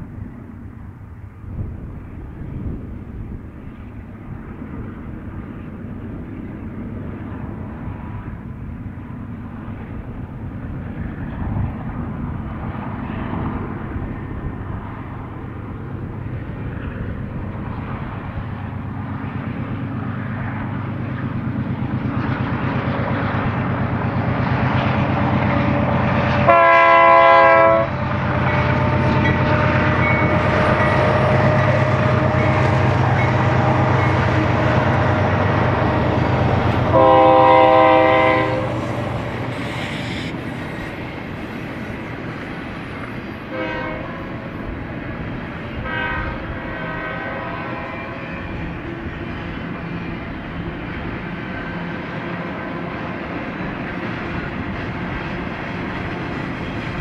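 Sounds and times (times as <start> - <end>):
diesel locomotive rumble: 0.0 - 57.0
freight cars rolling past: 4.8 - 45.9
train air horn blast: 26.4 - 32.5, 36.8 - 41.0, 43.5 - 44.4, 45.8 - 48.3.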